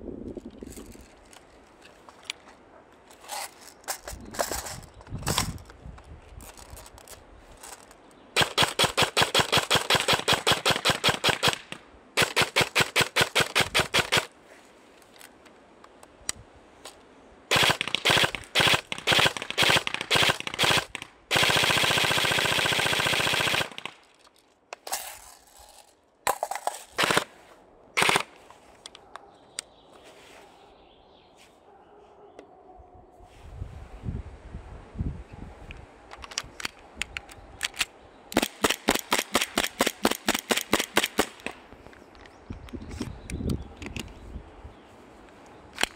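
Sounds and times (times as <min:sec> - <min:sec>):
airsoft rifles firing full auto: 0:08.4 - 0:14.3, 0:17.5 - 0:24.0, 0:26.9 - 0:27.4, 0:28.0 - 0:28.3, 0:38.4 - 0:41.4.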